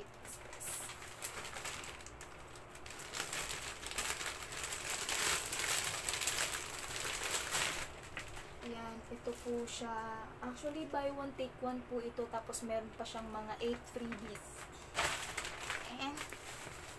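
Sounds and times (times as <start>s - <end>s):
plastic packaging crinkling: 0.0s - 9.8s, 13.6s - 16.9s.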